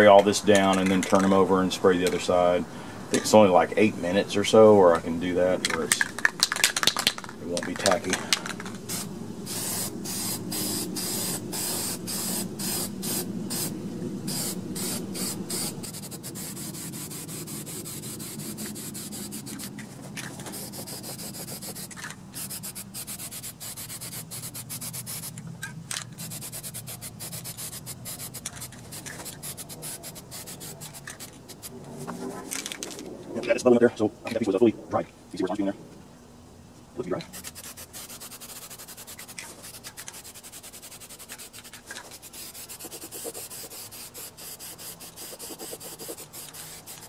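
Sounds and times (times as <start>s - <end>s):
aerosol spray bursts hissing: 7.9s - 19.8s, 20.4s - 25.4s, 26.2s - 31.7s, 37.3s - 47.0s.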